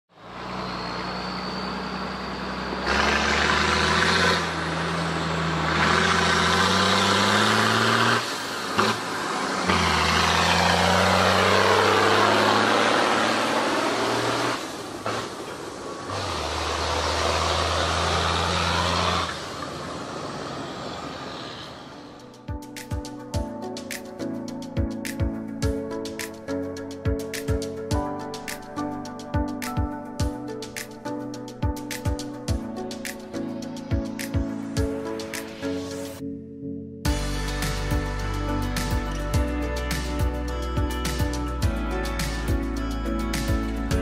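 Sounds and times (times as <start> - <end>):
tractor diesel engine accelerating: 0.1 - 22.5.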